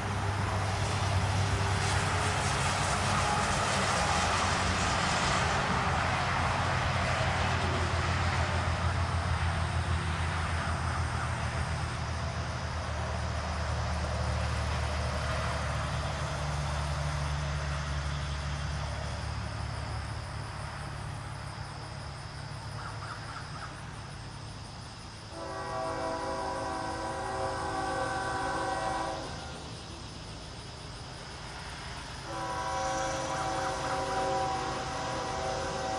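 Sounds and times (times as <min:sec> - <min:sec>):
locomotive air horn chord: 0:01.8 - 0:04.8, 0:25.3 - 0:29.6, 0:32.2 - 0:35.9.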